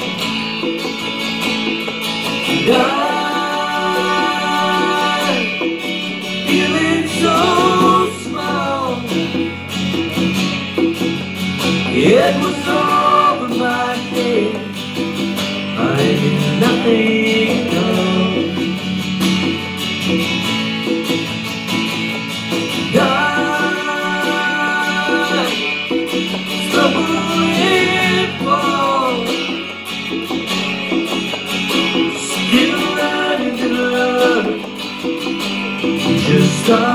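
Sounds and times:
acoustic guitar strumming: 0.0s - 36.9s
conga drums: 0.0s - 36.9s
man singing: 2.5s - 9.6s, 11.8s - 15.1s, 15.7s - 19.0s, 22.8s - 29.7s, 32.0s - 34.9s, 36.0s - 36.9s.

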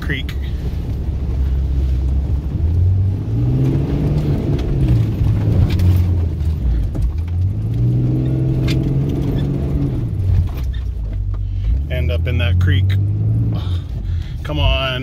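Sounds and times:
vehicle engine revving hard: 2.8s - 6.2s, 7.4s - 10.3s.

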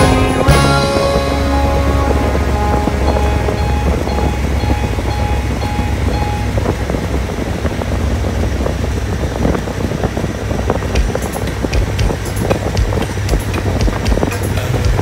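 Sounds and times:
motorcycle engine and road rumble: 0.0s - 15.0s
wind rushing over microphone: 0.0s - 15.0s.

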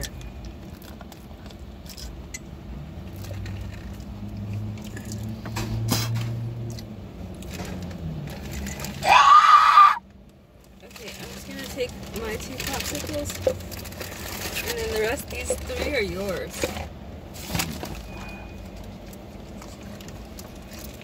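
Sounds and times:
loud high-pitched cry: 9.0s - 10.0s.

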